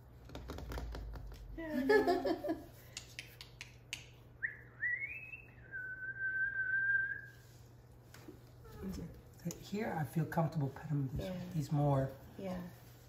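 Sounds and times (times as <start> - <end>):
whistling: 4.4 - 7.4.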